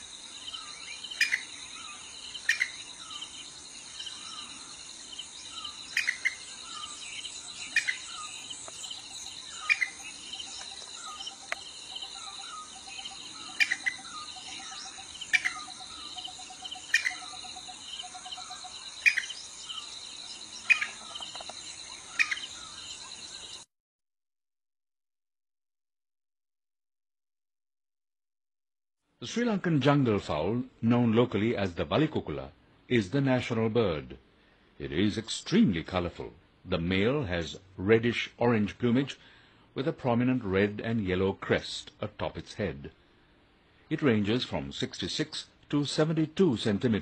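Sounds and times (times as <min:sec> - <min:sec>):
high-pitched insect chorus: 0:00.0 - 0:23.7.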